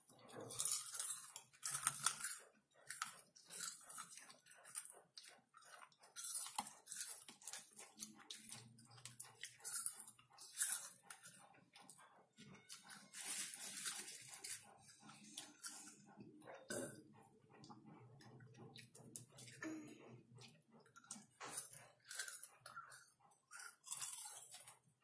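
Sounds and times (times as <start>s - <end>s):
chewing popcorn: 0.0s - 25.0s
popcorn rustling: 12.6s - 15.9s.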